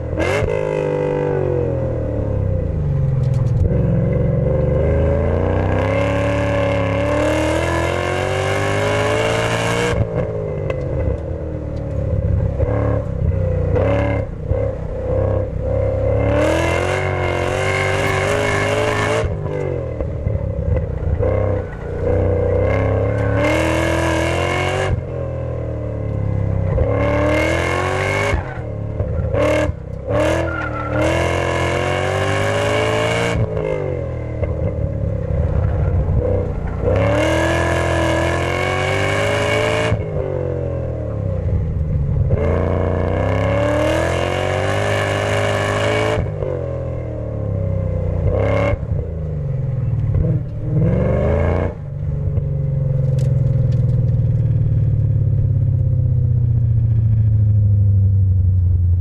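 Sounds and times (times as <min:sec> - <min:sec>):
car engine revving hard: 0:00.0 - 0:02.0, 0:03.6 - 0:10.3, 0:13.7 - 0:20.1, 0:21.1 - 0:34.8, 0:35.5 - 0:41.2, 0:42.3 - 0:47.4, 0:48.2 - 0:48.9, 0:50.1 - 0:51.9
engine throttle blips: 0:00.0 - 0:59.0.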